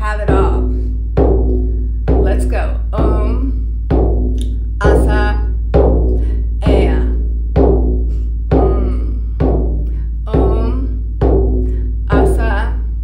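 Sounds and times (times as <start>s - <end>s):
frame drum struck with mallet: 0.0s - 12.8s
woman chanting drawn-out tones: 2.2s - 3.6s, 4.8s - 5.6s, 6.6s - 7.2s, 8.5s - 9.4s, 10.3s - 11.0s, 12.1s - 13.0s.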